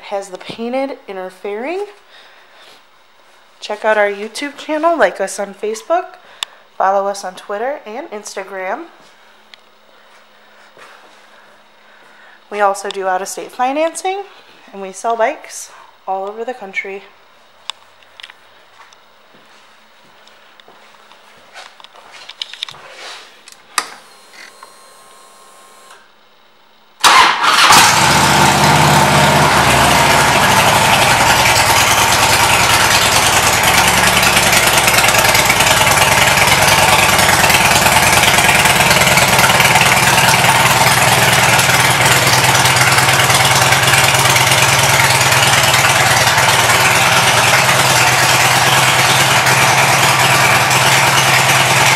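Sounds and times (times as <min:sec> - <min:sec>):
motorcycle engine starting and idling: 0:27.0 - 0:51.9.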